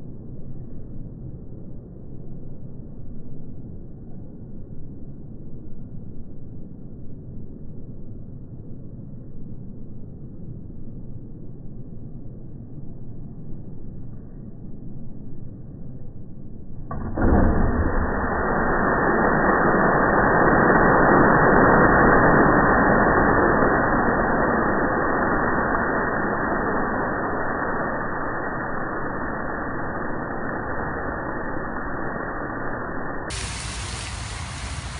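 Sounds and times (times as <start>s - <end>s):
slowed fireball flame rush: 16.9s - 34.9s.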